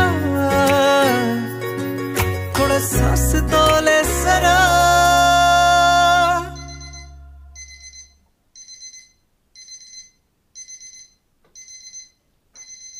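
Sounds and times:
song chord: 0.0s - 7.6s
electronic alarm beeping: 6.5s - 12.9s.

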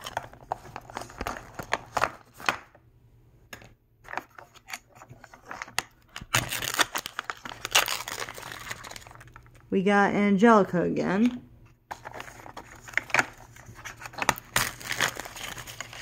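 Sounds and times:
plastic wrappers crinkling: 5.1s - 9.7s, 11.9s - 16.0s.

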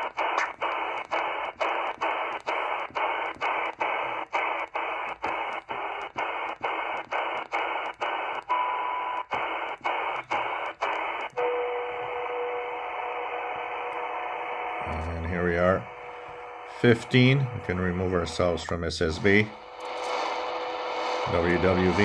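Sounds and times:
radio band hiss: 0.0s - 22.0s
steady beat whistles: 0.0s - 22.0s
carrier whistle: 7.1s - 22.0s.

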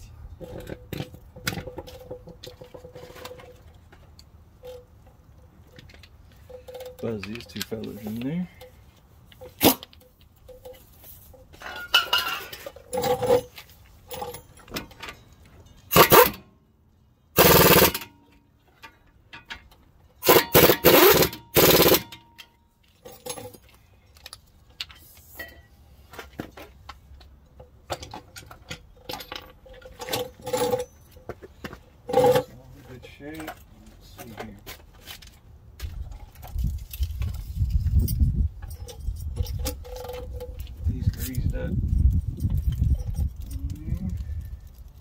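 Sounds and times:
metal clinks and scrapes: 0.0s - 16.5s, 17.4s - 45.0s
power tool driving bolts: 15.9s - 16.4s, 17.4s - 18.3s, 20.2s - 22.4s.

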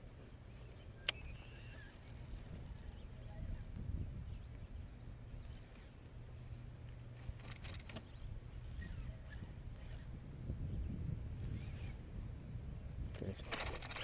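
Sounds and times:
high-pitched insect drone: 0.0s - 14.0s
wind rumble on microphone: 0.0s - 14.0s.

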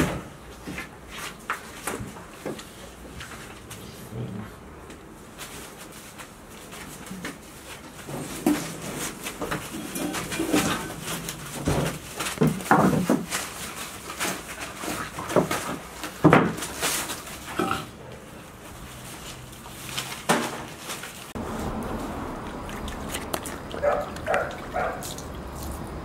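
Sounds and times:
scuffling on paper-covered floor: 5.2s - 17.5s, 18.4s - 22.4s
puppies vocalising: 22.7s - 25.2s.

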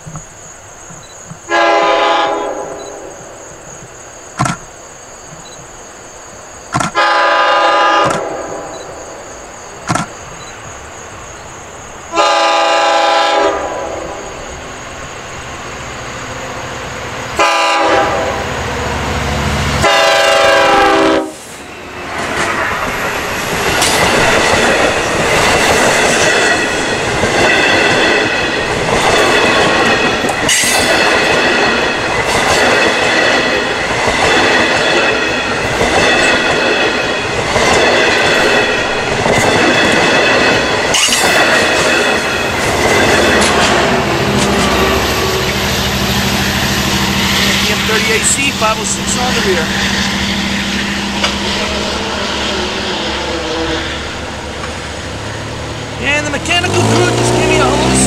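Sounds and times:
train wheels clattering on rails: 0.0s - 1.6s, 2.2s - 5.8s, 6.7s - 7.1s, 9.7s - 10.8s, 14.2s - 52.7s, 53.9s - 58.0s
train horn blasts: 1.5s - 2.9s, 7.0s - 8.7s, 12.1s - 14.2s, 17.4s - 21.5s, 56.3s - 58.0s.

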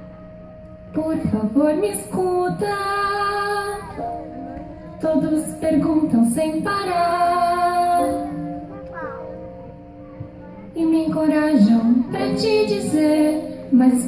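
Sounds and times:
recorded musical accompaniment: 0.0s - 14.0s
young woman singing: 0.9s - 4.2s, 4.8s - 8.5s, 10.8s - 14.0s.

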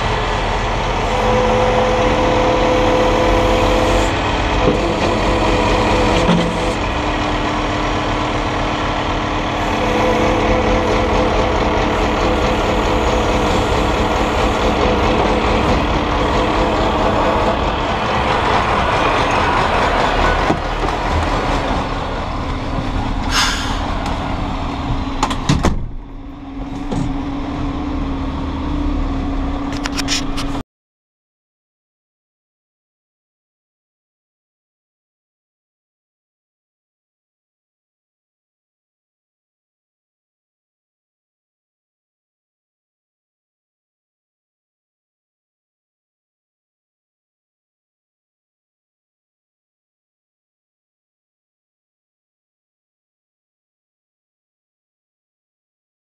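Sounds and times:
crane hydraulic whine: 0.0s - 25.2s
diesel lorry engine running: 0.0s - 30.6s
air hiss: 23.3s - 23.9s.

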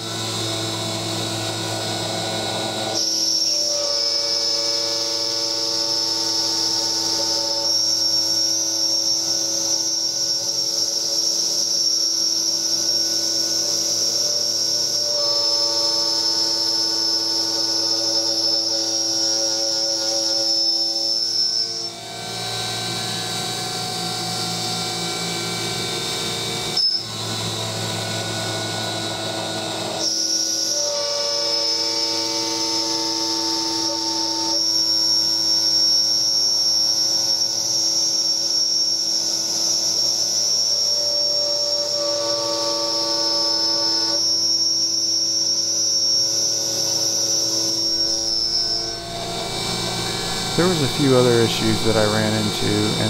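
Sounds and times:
spindle motor high whine: 0.0s - 53.0s
rough metal cutting noise: 45.9s - 53.0s.

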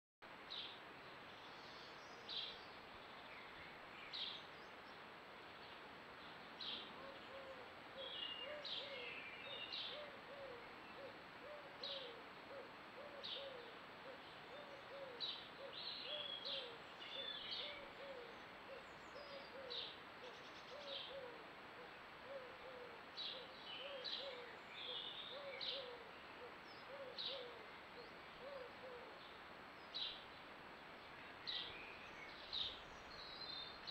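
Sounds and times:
outdoor background noise: 0.2s - 33.9s
low hooting bird call: 6.7s - 29.3s.

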